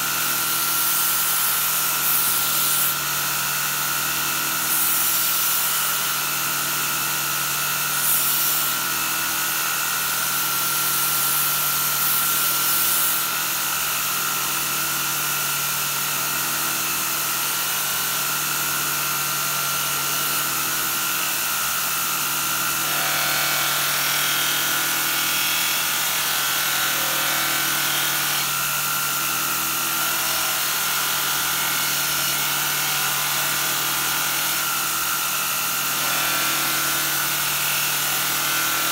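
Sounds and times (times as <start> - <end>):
blade rubbing on polishing wheel: 0.8 - 3.0, 4.7 - 5.9, 7.9 - 8.8.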